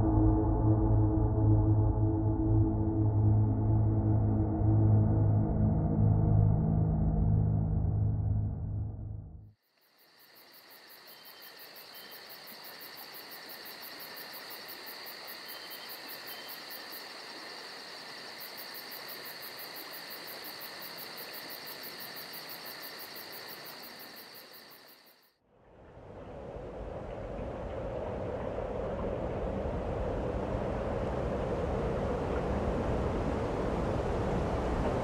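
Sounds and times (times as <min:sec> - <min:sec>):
crickets trilling: 0:09.6 - 0:25.4
low rushing noise: 0:25.6 - 0:35.0.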